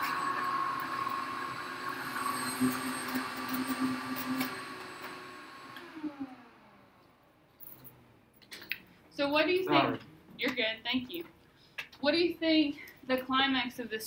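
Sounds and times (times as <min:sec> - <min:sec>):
small electric motor whirring: 0:00.0 - 0:07.0.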